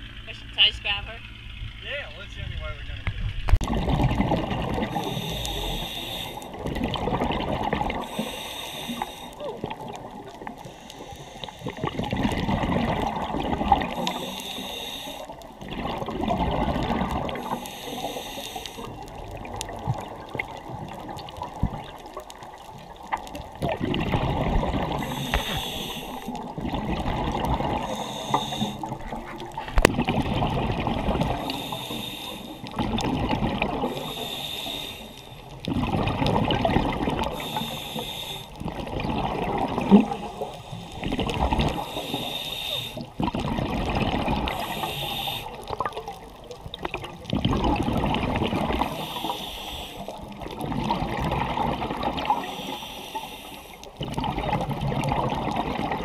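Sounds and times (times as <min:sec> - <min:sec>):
exhaled bubbles gurgling: 0:01.3 - 0:56.0
regulator inhale hiss: 0:04.9 - 0:06.6, 0:08.0 - 0:09.5, 0:10.4 - 0:12.0, 0:13.9 - 0:15.4, 0:17.3 - 0:19.0, 0:24.9 - 0:26.5, 0:27.8 - 0:29.0, 0:31.4 - 0:32.8, 0:33.9 - 0:35.6, 0:37.3 - 0:38.6, 0:40.2 - 0:43.1, 0:44.4 - 0:45.7, 0:48.8 - 0:50.5, 0:52.4 - 0:54.0.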